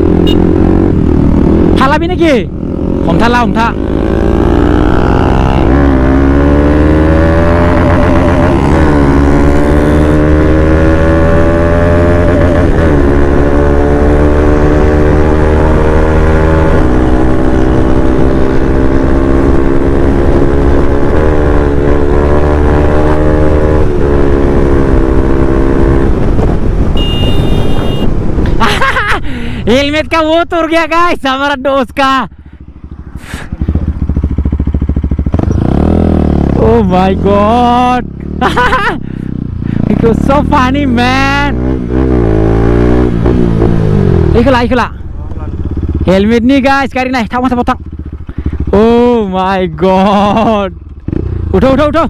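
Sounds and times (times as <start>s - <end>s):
motorcycle engine accelerating: 0.0s - 30.2s, 32.4s - 52.0s.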